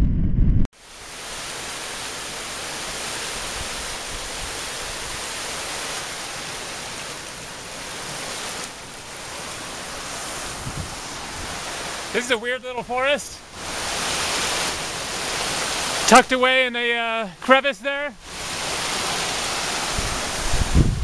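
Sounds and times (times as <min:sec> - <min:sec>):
wind buffeting microphone: 0:00.0 - 0:00.7, 0:10.0 - 0:12.0, 0:19.7 - 0:21.0
stream rushing over stones: 0:00.8 - 0:21.0.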